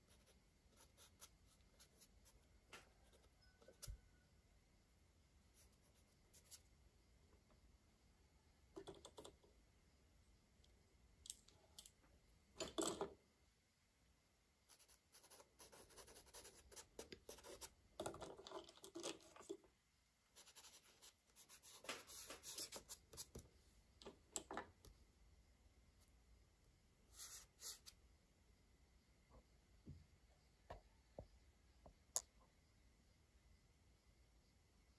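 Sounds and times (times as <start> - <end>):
crayon scratching on paper: 14.7 - 17.7.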